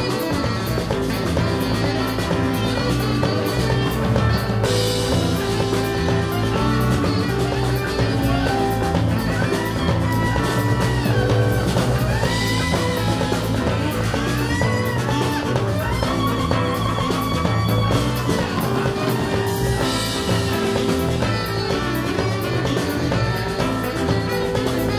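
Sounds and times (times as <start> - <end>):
live band playing instrumental: 0.0 - 24.9.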